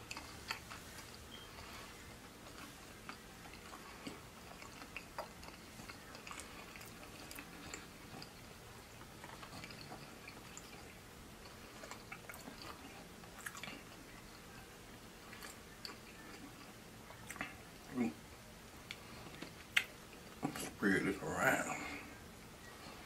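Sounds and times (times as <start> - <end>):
person chewing: 0.0 - 17.9, 18.8 - 20.7
wet mouth clicks and smacks: 18.9 - 20.0.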